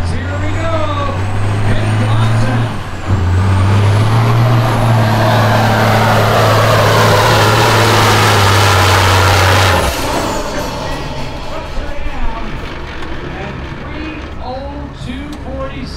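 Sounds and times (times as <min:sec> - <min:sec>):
diesel engine drone: 0:00.0 - 0:15.9
high engine whine: 0:00.0 - 0:15.9.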